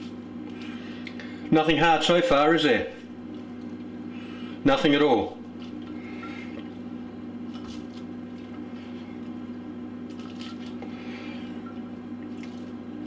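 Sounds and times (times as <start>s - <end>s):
steady low hum: 0.0s - 13.0s
onion rustling and squishing: 10.0s - 11.6s.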